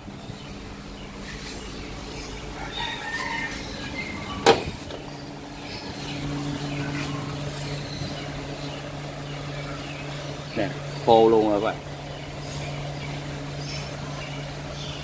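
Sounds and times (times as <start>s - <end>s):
steady low hum: 0.0s - 15.0s
car door clunk: 4.4s - 5.1s.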